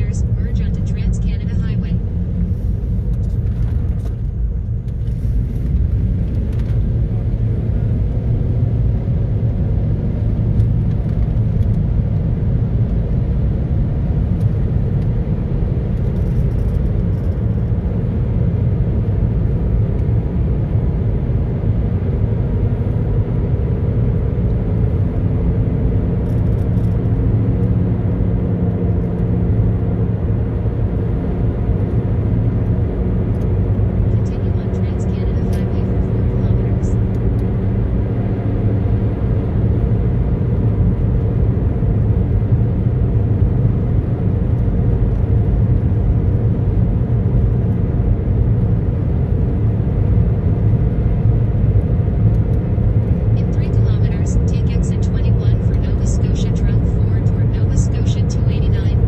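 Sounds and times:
car interior road rumble: 0.0s - 59.0s.

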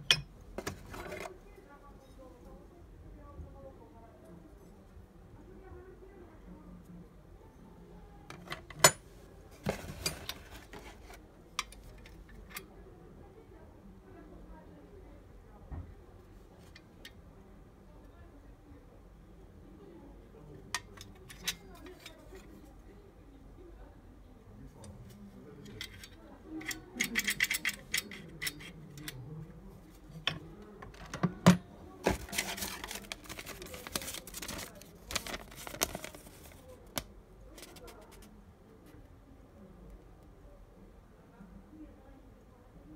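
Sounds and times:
metal lock parts clicking: 25.7s - 29.2s
rustling and knocking in cardboard box: 32.0s - 36.1s.

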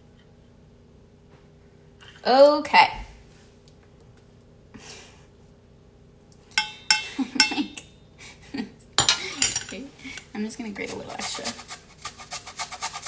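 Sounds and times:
metal utensils clinking: 6.6s - 7.9s, 9.0s - 9.9s.

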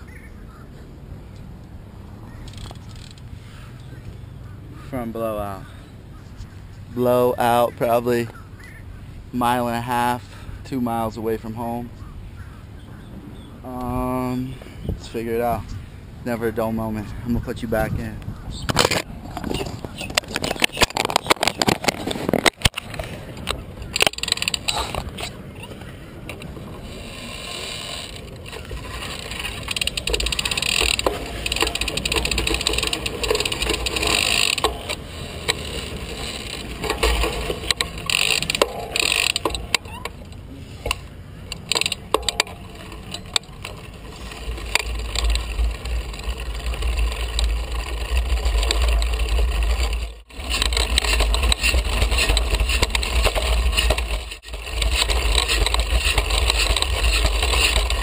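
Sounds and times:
bicycle chain rattling and clicking: 2.4s - 3.3s, 19.9s - 25.7s, 26.3s - 58.0s
low rumble of motion: 17.9s - 58.0s.

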